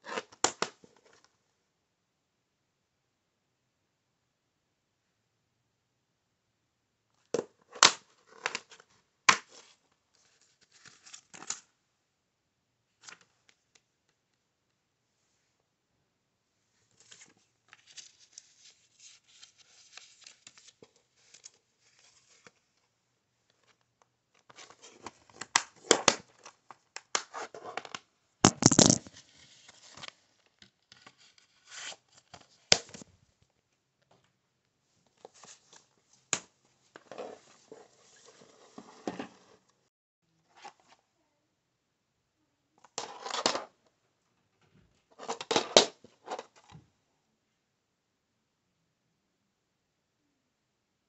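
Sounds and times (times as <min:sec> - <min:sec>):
plastic cases rustling and crinkling: 0:28.5 - 0:30.0.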